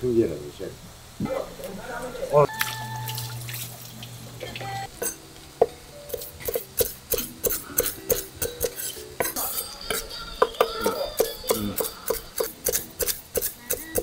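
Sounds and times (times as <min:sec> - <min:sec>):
knife chopping on wooden board: 0:06.1 - 0:14.0.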